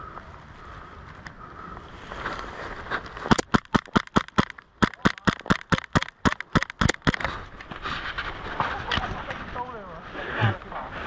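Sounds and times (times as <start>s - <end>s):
rapid airsoft shots: 3.3s - 7.3s.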